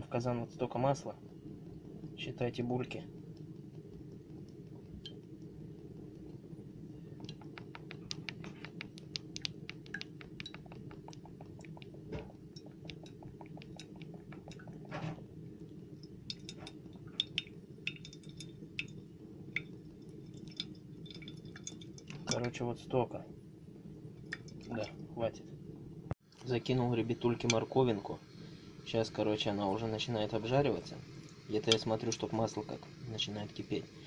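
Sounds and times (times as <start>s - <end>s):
low steady hum: 0.0s - 34.0s
small sharp pops: 7.2s - 14.9s.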